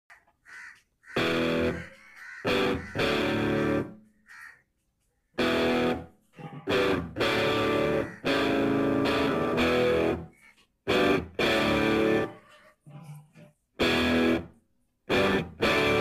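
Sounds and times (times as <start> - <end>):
guitar music with held chords: 1.2 - 1.8, 2.5 - 4.0, 5.4 - 10.3, 10.9 - 12.4, 13.8 - 14.5, 15.1 - 16.0.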